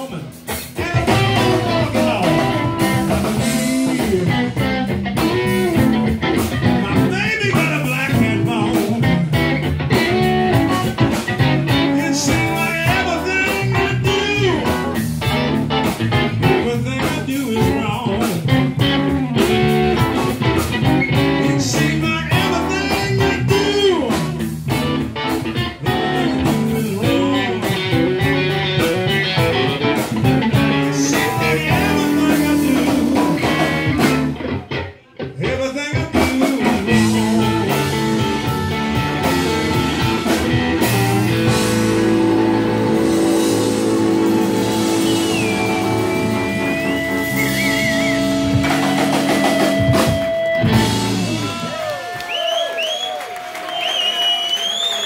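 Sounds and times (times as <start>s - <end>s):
electric guitar bending notes: 0.0s - 52.0s
blues band playing: 0.0s - 55.0s.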